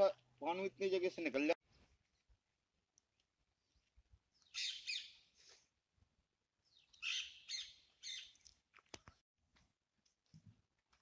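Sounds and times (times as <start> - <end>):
parakeets calling: 4.5 - 5.2, 7.0 - 8.3.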